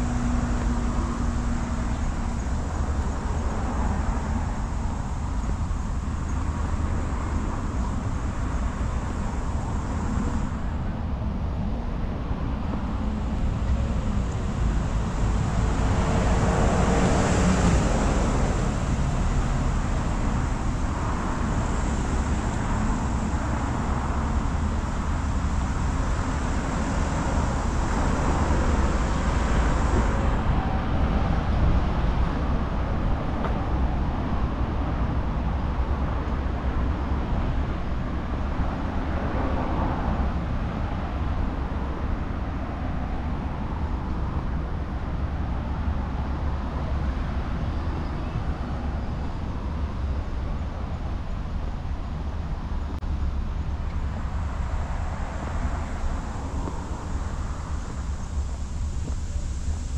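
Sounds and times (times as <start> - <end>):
vehicle passing: 0.0 - 5.5, 13.0 - 34.3
road traffic noise: 0.0 - 59.9.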